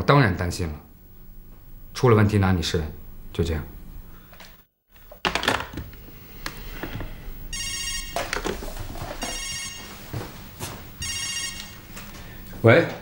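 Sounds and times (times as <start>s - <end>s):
electronic telephone ring: 7.5s - 8.6s, 9.2s - 9.9s, 11.0s - 11.8s.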